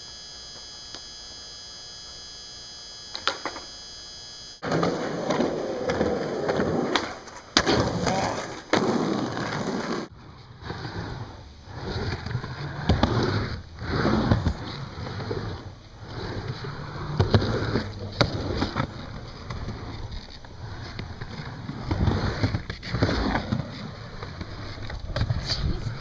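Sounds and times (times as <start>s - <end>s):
electrical hum: 0.0s - 26.0s
skateboard knocks: 3.1s - 3.7s
skateboard landing clack: 3.1s - 3.7s, 4.6s - 10.1s, 17.0s - 20.3s
skateboard wheels rolling: 3.1s - 3.7s, 4.6s - 26.0s.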